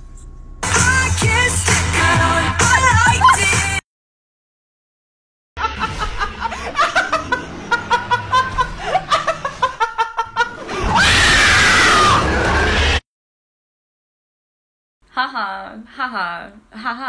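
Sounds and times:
rapid rhythmic laughter: 5.6s - 10.7s
loud sustained scream: 10.9s - 13.0s.

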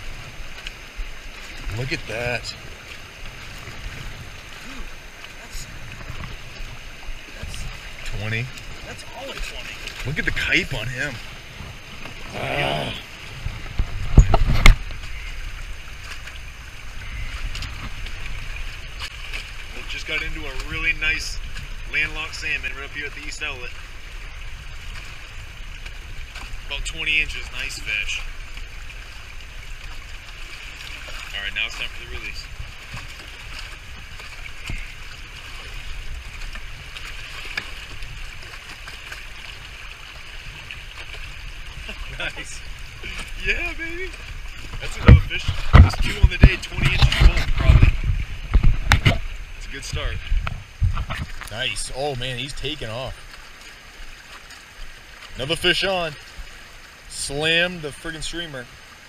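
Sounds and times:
water noise: 0.0s - 59.0s
wind: 0.0s - 59.0s
sharp knocks against boat: 44.6s - 49.3s.

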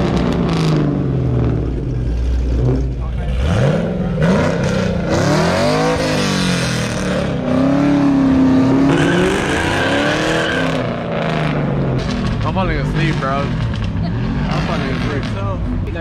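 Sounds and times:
car engine revving: 0.0s - 16.0s
high tyre squeal: 8.7s - 11.5s.

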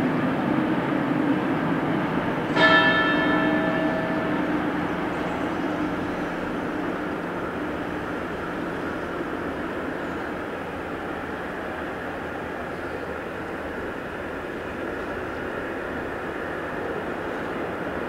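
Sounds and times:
church bell ringing: 2.4s - 10.3s.

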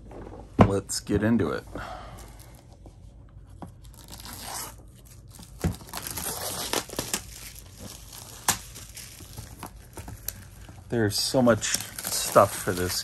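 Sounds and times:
plastic shrink-wrap tearing and crinkling: 3.8s - 13.0s.

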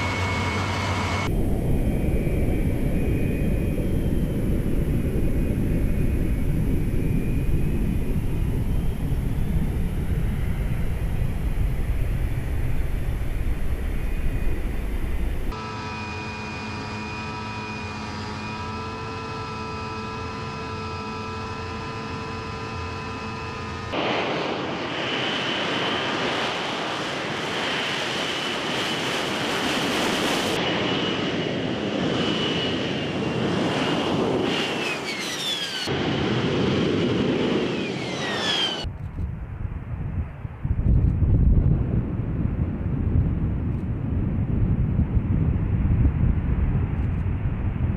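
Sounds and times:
jet engine whining in cockpit: 0.0s - 38.9s
distant jet hovering rumble: 0.0s - 47.9s
loud jet whine on runway: 0.0s - 47.9s
falling whistle: 34.8s - 35.9s, 37.7s - 38.9s.

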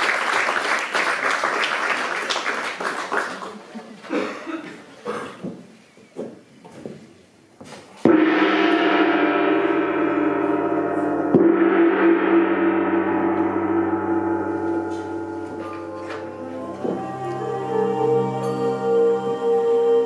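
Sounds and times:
large gong ringing: 8.1s - 17.4s.

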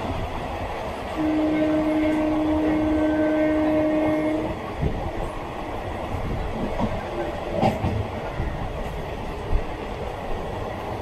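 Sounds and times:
rail noise rumble: 0.0s - 11.0s
train horn blast: 1.2s - 4.6s.

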